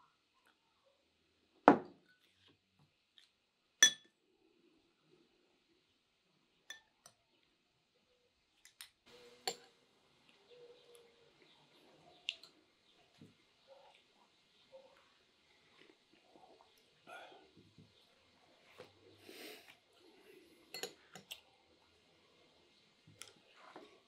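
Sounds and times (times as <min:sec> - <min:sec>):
ringing glass clink: 0:03.8 - 0:04.1.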